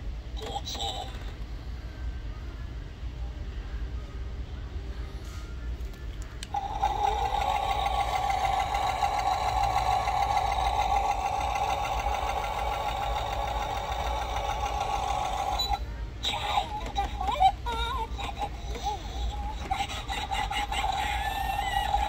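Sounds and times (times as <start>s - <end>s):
wavering electronic voice effect: 0.4s - 1.3s
sewing machine whirring: 6.5s - 15.8s.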